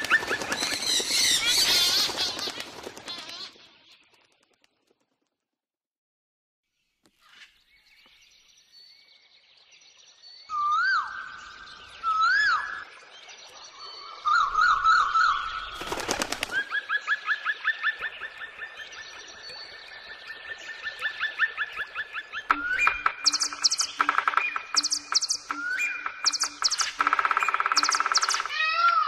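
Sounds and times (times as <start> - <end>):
birds singing: 0.0 - 2.6, 7.5 - 29.0
rattle of rapid clicks: 26.2 - 28.5.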